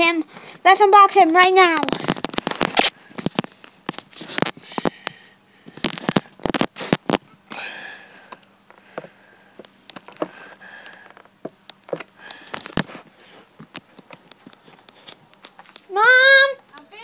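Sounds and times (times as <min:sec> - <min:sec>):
packaging crackling as opened: 0:01.8 - 0:05.0, 0:05.7 - 0:07.2, 0:09.8 - 0:13.0.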